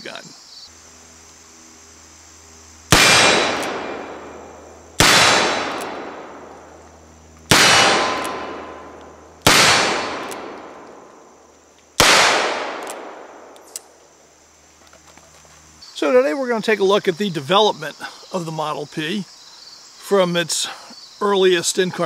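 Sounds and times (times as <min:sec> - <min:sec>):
revolver shots with echo: 0:02.9 - 0:06.6, 0:07.5 - 0:10.8.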